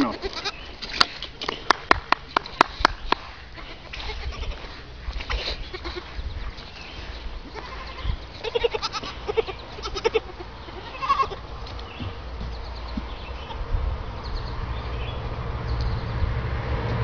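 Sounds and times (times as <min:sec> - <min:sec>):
goats bleating: 0:00.0 - 0:00.6, 0:03.5 - 0:04.7, 0:05.3 - 0:06.2, 0:07.5 - 0:11.4.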